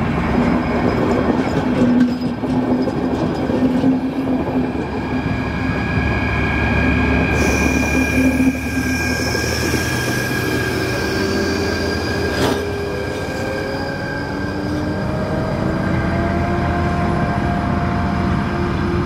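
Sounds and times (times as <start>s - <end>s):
train wheels squealing: 0.4s - 16.5s
rising whine: 4.4s - 19.0s.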